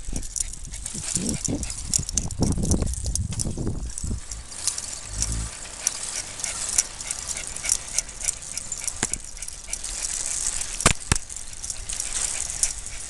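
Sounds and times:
bicycle rolling with rattles: 0.0 - 13.0.

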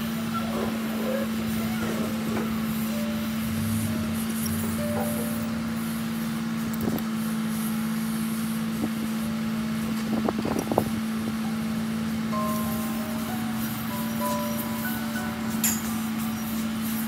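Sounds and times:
low hum: 2.2 - 6.8.

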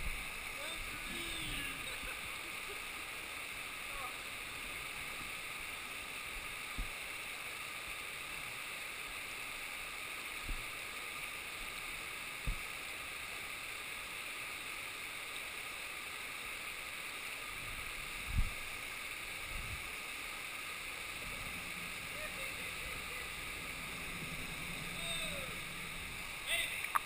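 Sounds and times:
river water rushing: 0.0 - 27.0
low thumps: 21.1 - 27.0.

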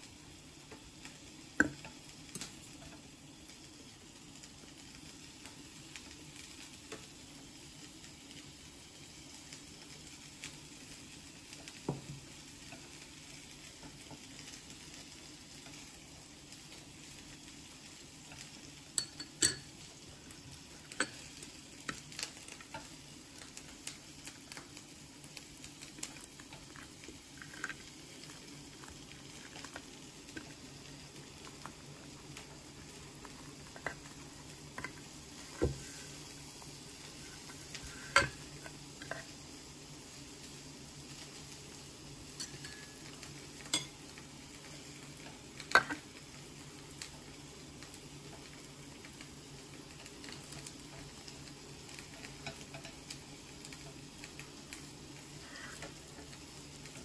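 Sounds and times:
faint steady hum: 0.0 - 57.0
chopsticks tapping on a plate: 19.0 - 19.7, 43.6 - 44.0.

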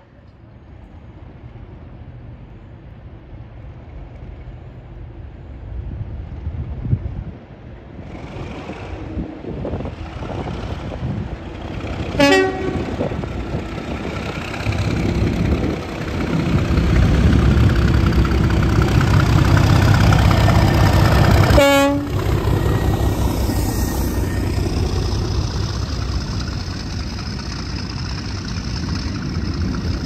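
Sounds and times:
diesel locomotive engine rumble: 0.0 - 30.0
train horn blast: 12.2 - 13.2, 21.5 - 22.9.

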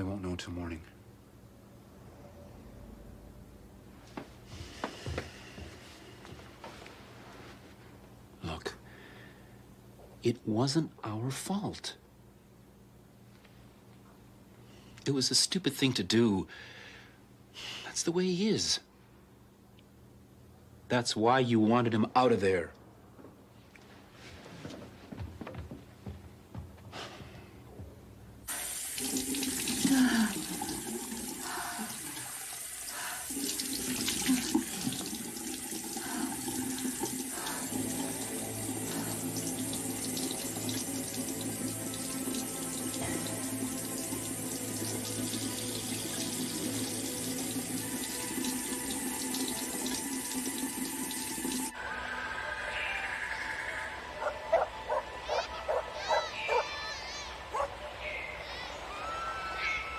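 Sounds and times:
water splashing face washing: 28.5 - 51.7.

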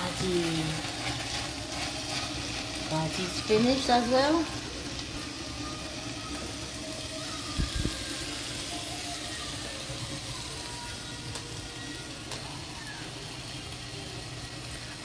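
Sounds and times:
greens sizzling in frying pan: 0.0 - 15.0.

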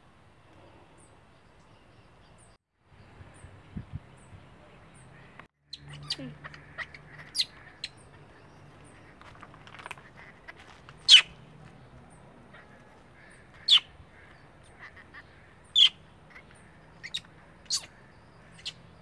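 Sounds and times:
baby monkey crying squeaks: 11.1 - 11.3, 17.0 - 17.9.

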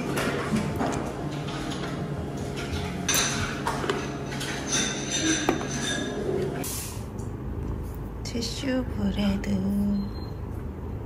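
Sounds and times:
dishes and cutlery clinking: 0.0 - 6.6.

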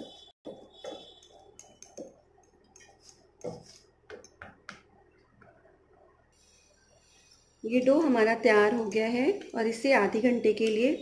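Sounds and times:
whisk scraping metal bowl: 1.0 - 4.4.

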